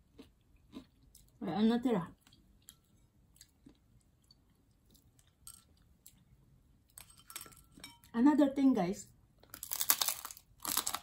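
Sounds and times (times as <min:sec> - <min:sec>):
chewing crunchy fried chicken: 0:00.0 - 0:01.4, 0:02.1 - 0:06.3.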